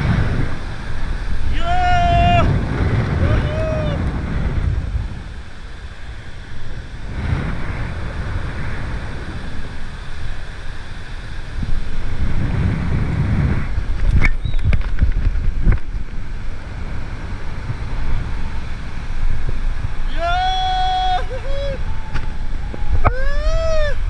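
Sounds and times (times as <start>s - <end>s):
wind buffeting microphone: 0.0s - 24.0s.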